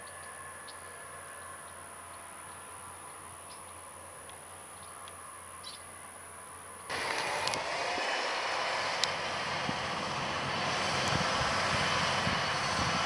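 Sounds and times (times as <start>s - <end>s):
distant tractor engine humming: 6.8s - 13.0s.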